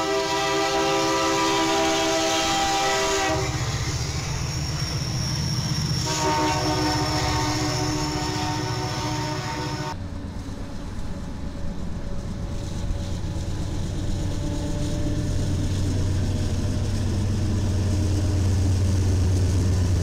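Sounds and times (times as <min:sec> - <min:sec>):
locomotive air horn: 0:00.0 - 0:03.9, 0:06.0 - 0:10.0
diesel engines and wheels rumbling: 0:00.0 - 0:20.0.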